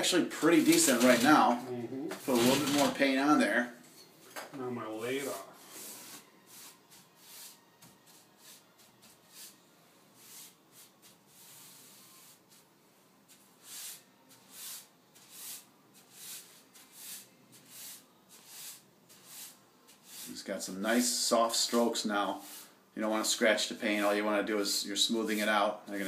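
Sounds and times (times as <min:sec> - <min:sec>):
paintbrush swishing on wood: 0:05.1 - 0:09.6, 0:10.2 - 0:25.6.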